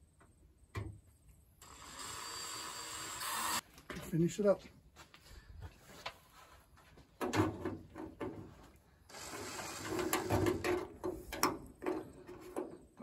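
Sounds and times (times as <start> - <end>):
cordless drill drilling through metal: 1.6 - 3.6, 9.1 - 10.5.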